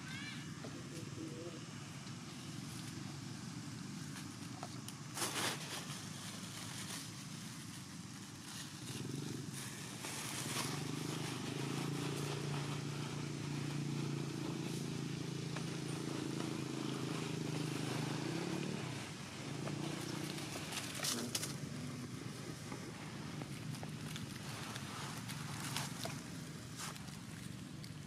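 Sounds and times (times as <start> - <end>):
engine humming: 0.0 - 28.0.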